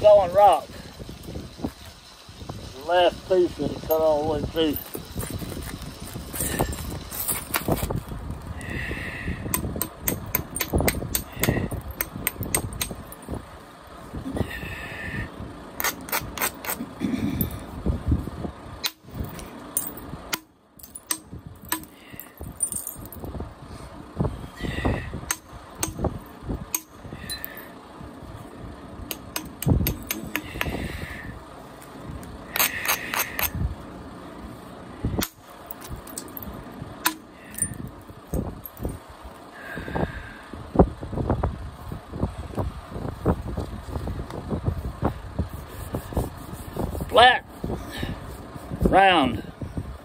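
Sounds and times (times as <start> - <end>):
billet striking flint: 9.5 - 13.2, 15.8 - 16.8, 18.8 - 22.0, 25.3 - 26.1, 26.7 - 27.6, 29.1 - 30.8, 32.5 - 33.6, 37.0 - 38.5.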